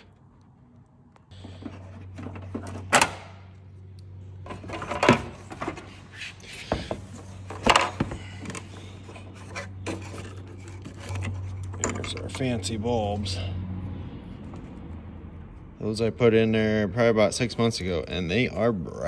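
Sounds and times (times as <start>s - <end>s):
plastic rubbing and scraping: 9.0s - 12.1s.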